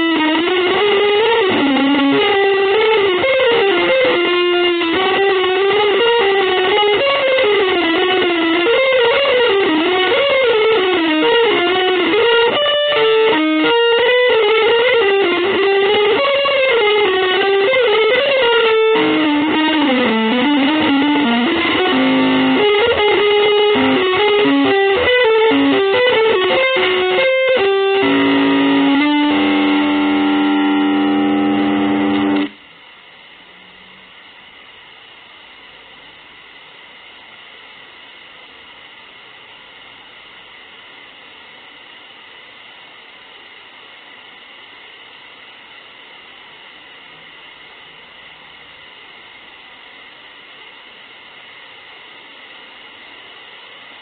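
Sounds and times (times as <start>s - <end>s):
distorted electric guitar improvising: 0.0s - 32.7s
faint hiss: 0.0s - 54.0s.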